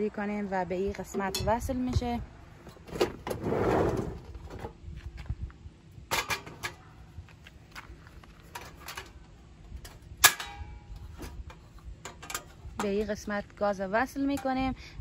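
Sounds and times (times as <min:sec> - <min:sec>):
clicks and knocks of camping stove: 0:06.1 - 0:06.8, 0:08.5 - 0:09.2, 0:09.8 - 0:13.0.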